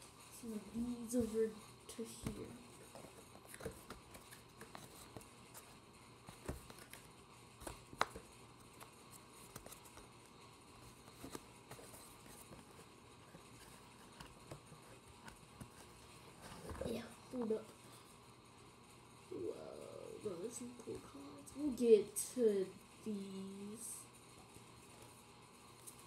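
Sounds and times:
cards tapping and clicking: 2.2s - 17.5s.

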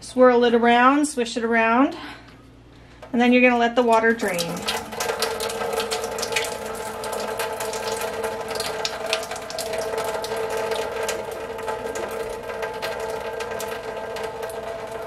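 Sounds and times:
steady hum: 0.0s - 15.0s
water splattering into metal sink: 3.9s - 15.0s.

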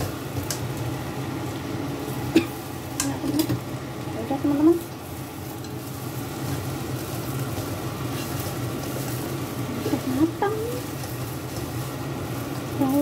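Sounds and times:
leaves sizzling in a pan: 0.0s - 13.0s
spatula scraping pan: 5.5s - 10.1s.

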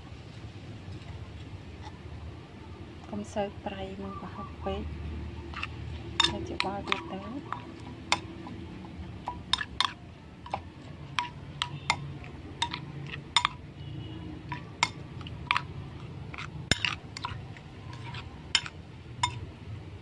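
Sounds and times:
metal spoon mashing wet dip: 5.0s - 20.0s
spoon clinking against plate: 5.5s - 13.7s, 14.4s - 19.5s.

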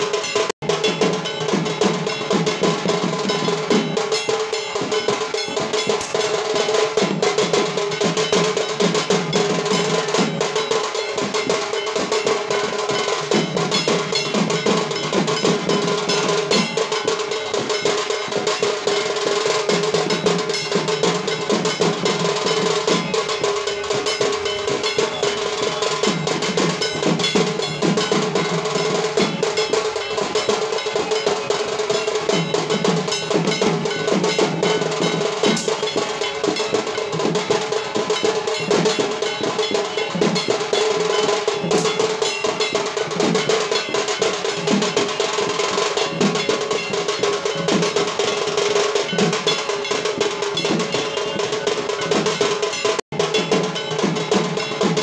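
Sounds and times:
drums beaten in fast rhythm: 0.0s - 55.0s
heavy low drum phrases: 0.0s - 55.0s.

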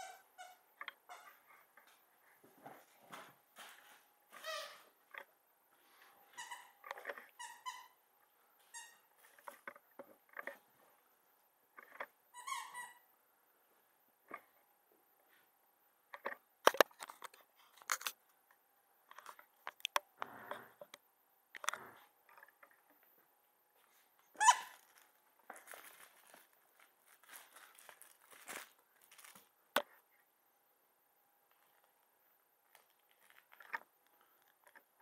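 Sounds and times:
toy squeak: 0.0s - 1.4s, 6.4s - 8.0s, 12.4s - 13.0s, 24.4s - 24.8s.

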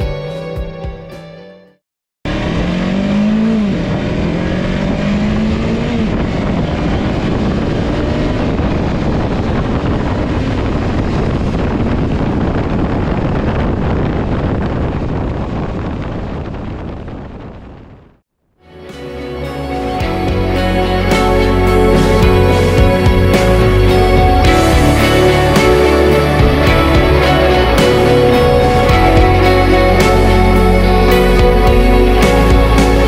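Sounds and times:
motorcycle engine revving: 2.3s - 14.4s, 20.0s - 33.0s
road noise: 2.3s - 33.0s
wind rushing over microphone: 2.4s - 18.2s.

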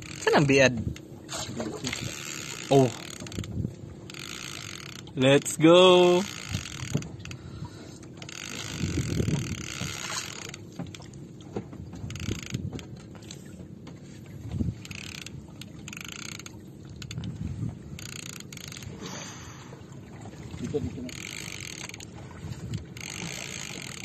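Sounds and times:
fishing reel winding: 0.0s - 0.6s, 1.8s - 7.4s, 8.1s - 10.6s, 12.1s - 13.5s, 14.8s - 17.4s, 18.0s - 18.9s, 21.1s - 24.0s
thumps against wooden boat: 6.5s - 7.2s, 8.8s - 14.8s.

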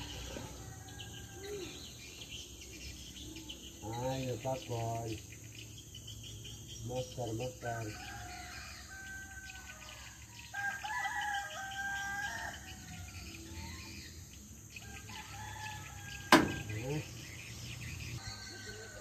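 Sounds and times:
rooster crowing: 0.0s - 1.9s, 7.6s - 13.9s, 14.8s - 17.1s, 18.2s - 19.0s
faint bird chirps: 0.0s - 19.0s.

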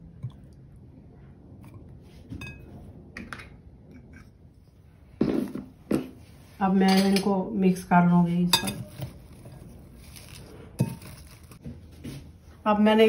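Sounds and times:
utensils clattering against glass bowl: 8.5s - 9.6s.

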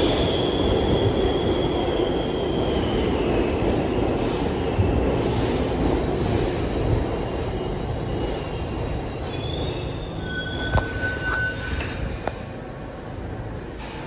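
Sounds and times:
subway train rumbling: 0.0s - 14.0s
wheels squealing: 9.2s - 12.2s.

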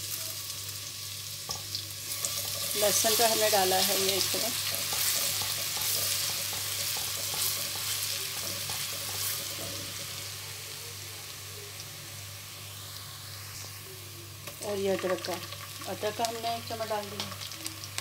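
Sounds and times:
garlic sizzling in hot oil: 0.0s - 18.0s.

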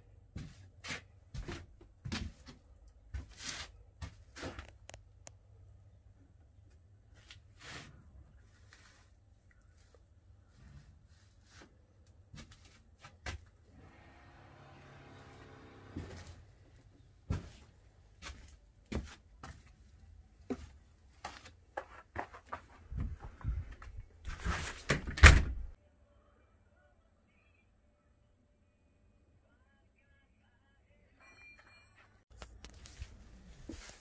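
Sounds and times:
footsteps on wooden floor: 17.3s - 19.7s.

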